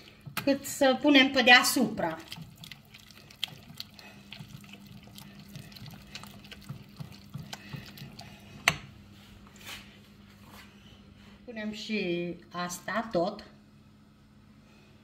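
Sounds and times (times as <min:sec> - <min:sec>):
whisk squelching thick sauce: 0:01.4 - 0:08.8.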